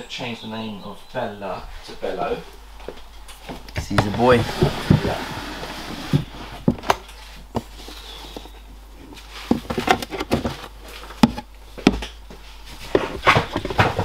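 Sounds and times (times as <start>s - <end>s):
plastic tub scraping: 3.8s - 6.9s, 7.6s - 11.4s, 12.8s - 14.0s.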